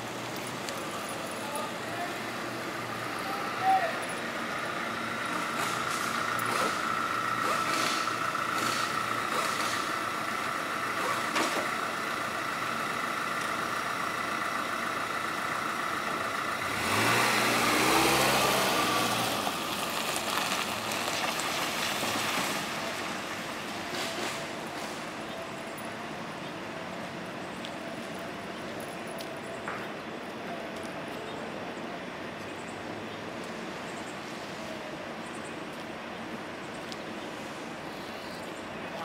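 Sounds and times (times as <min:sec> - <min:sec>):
vehicle accelerating: 0:00.0 - 0:25.9
vehicle engines running: 0:00.0 - 0:39.0.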